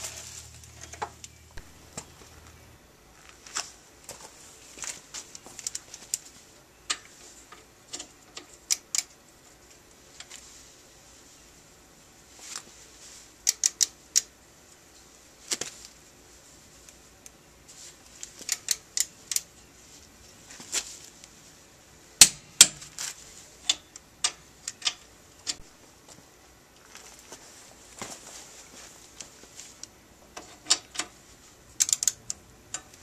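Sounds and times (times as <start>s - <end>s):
ratchet wrench clicking: 13.4s - 14.3s, 31.8s - 33.0s.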